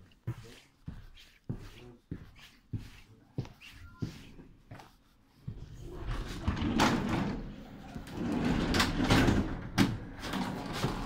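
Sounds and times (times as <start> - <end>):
sliding door rumbling and rattling: 5.8 - 11.0.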